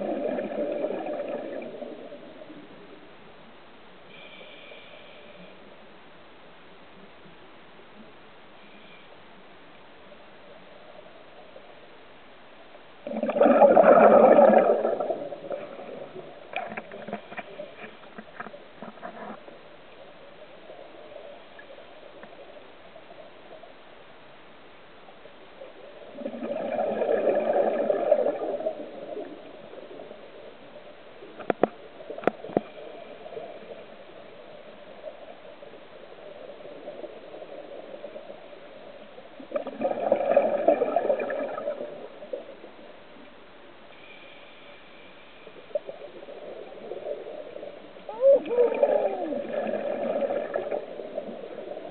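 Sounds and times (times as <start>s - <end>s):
breath bubbling underwater: 0.0s - 2.1s, 13.0s - 16.2s, 26.1s - 29.0s, 39.5s - 42.0s, 48.1s - 51.9s
underwater hiss: 4.1s - 5.7s, 43.9s - 51.9s.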